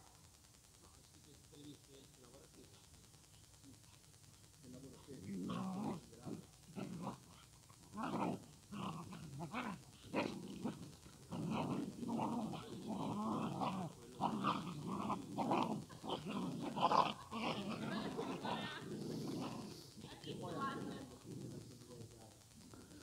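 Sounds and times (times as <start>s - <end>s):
dogs growling: 4.8s - 23.0s.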